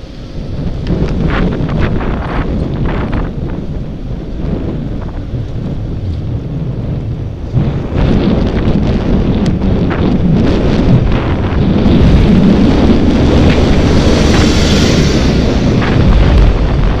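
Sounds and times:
bus passing close: 0.0s - 6.0s, 10.6s - 17.0s
wind buffeting microphone: 0.0s - 17.0s.

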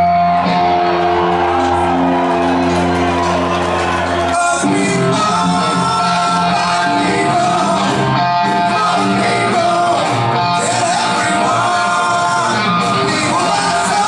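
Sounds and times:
live rock band: 0.0s - 14.0s
male lead vocal: 4.3s - 14.0s.

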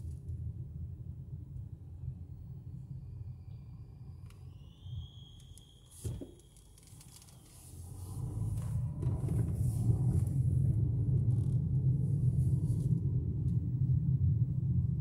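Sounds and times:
car engine and tyres rumbling: 4.1s - 15.0s.

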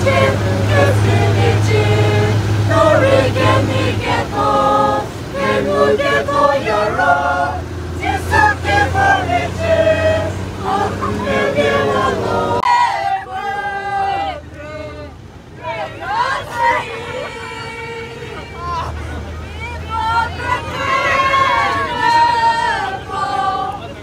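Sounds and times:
bus humming: 0.0s - 24.0s
passengers singing in chorus: 0.0s - 24.0s.

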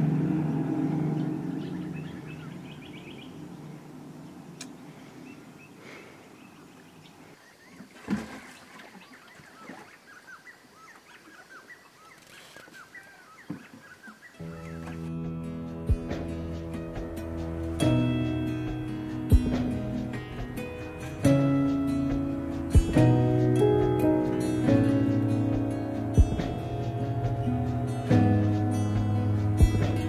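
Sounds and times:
low engine drone: 0.0s - 5.7s, 14.4s - 30.0s
birds chirping: 0.0s - 30.0s.

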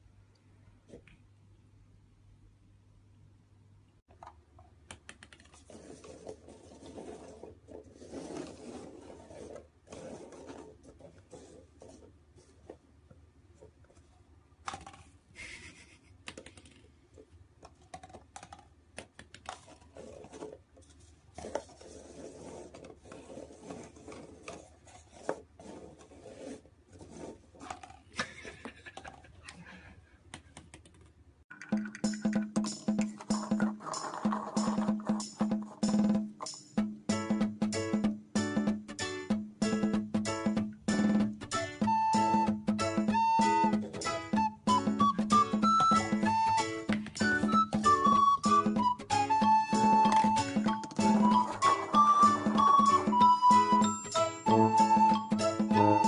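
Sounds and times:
paper cups tapping on wooden floor: 30.4s - 35.8s
music with wood-block beat: 31.5s - 56.0s.

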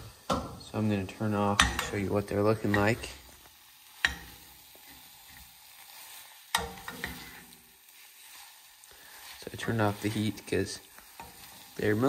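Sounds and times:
faint sizzle: 0.0s - 12.0s
metallic clank of utensil on pan: 1.6s - 2.0s, 4.0s - 4.4s, 6.5s - 7.5s
utensils scraping eggs in saucepan: 4.0s - 12.0s.

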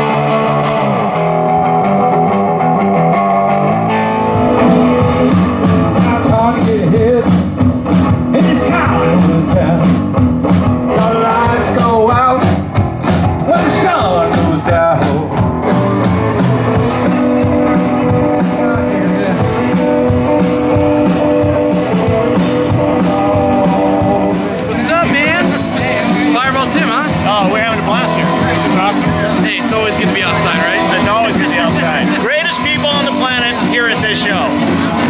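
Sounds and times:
electric guitar: 0.0s - 35.0s
drum kit beat: 4.0s - 35.0s
person singing: 4.5s - 7.5s, 16.4s - 35.0s.

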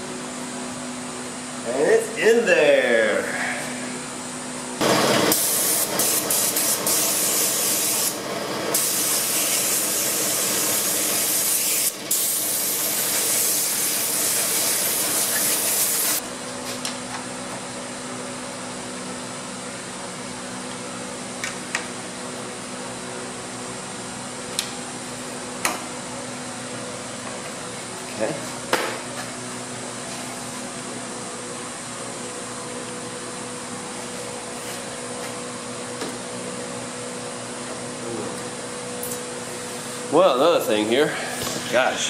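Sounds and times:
machine hum: 0.0s - 42.0s
loud spraying hiss: 5.3s - 8.2s, 8.8s - 16.2s.

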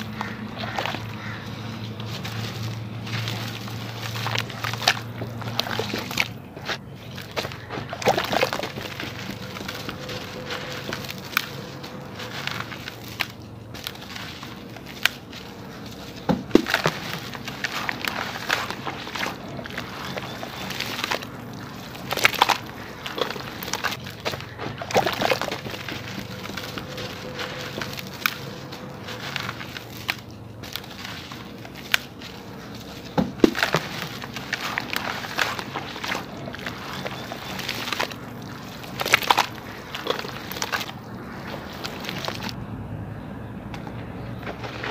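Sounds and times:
sharp splashes: 0.0s - 13.2s, 16.2s - 32.1s, 33.2s - 42.6s
gritty crumbling: 0.0s - 42.6s, 44.2s - 44.9s
muddy water sloshing: 0.0s - 42.6s, 43.8s - 44.9s.

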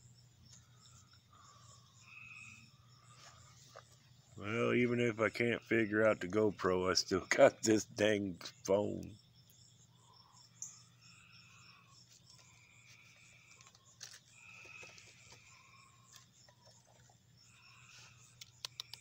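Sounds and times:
frogs trilling: 0.0s - 19.0s
insects calling: 0.0s - 19.0s
faint clicks: 18.3s - 19.0s.

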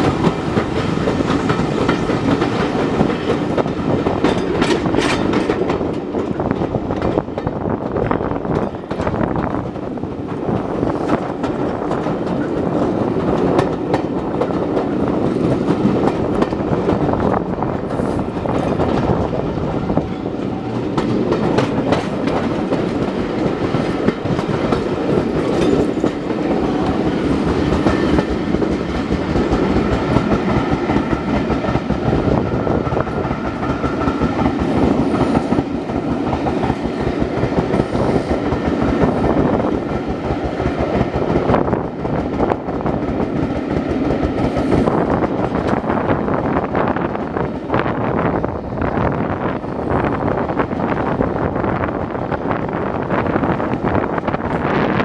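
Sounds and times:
train wheels clicking over rail joints: 0.0s - 55.0s
wind rushing past microphone: 0.0s - 55.0s
distant steam locomotive: 8.5s - 45.9s.

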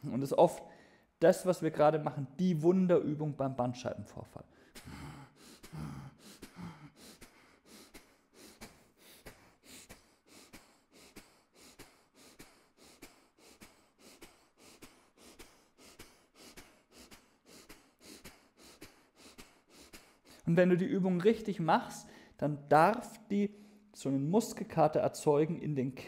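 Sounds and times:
rapid forceful exhalations: 4.5s - 20.5s.

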